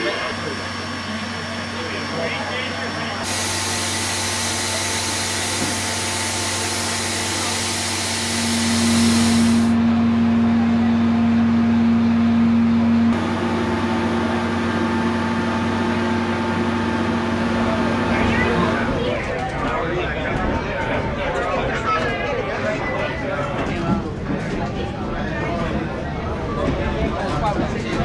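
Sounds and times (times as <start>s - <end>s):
steam hissing: 3.2s - 9.8s.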